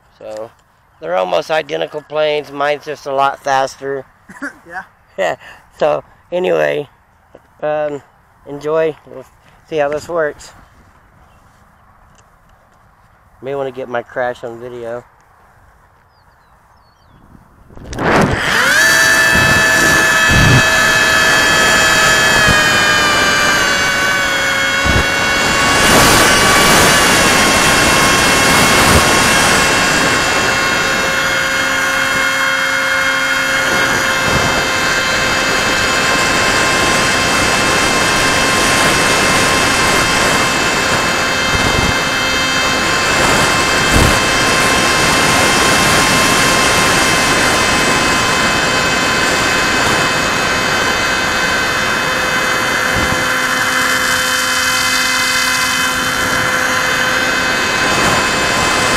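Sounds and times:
rushing airflow: 17.2 - 58.9
electric motor whining: 17.3 - 58.9.

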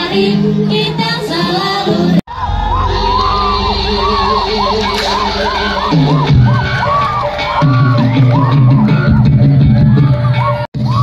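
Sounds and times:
crowd shouting and cheering: 0.0 - 11.0
music: 0.0 - 11.0
deep pitched sound: 2.3 - 11.0.

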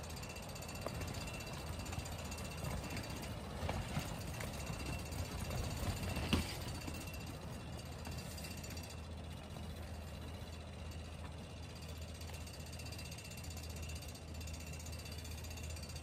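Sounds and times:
strong wind buffeting tent: 0.0 - 8.8
tent fabric rattling: 0.6 - 8.7.

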